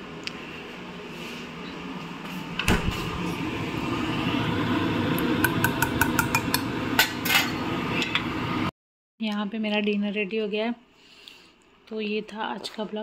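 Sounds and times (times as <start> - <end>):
steady rushing cooking noise: 2.9 - 8.7.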